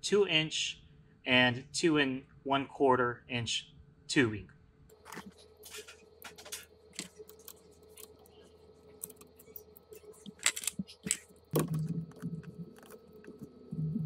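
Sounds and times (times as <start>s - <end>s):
steady hum: 0.0s - 14.0s
small metal parts clicking: 9.0s - 11.3s.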